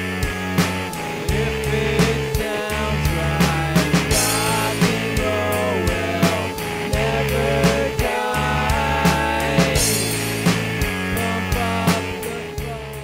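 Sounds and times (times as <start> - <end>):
rock music: 0.0 - 13.0.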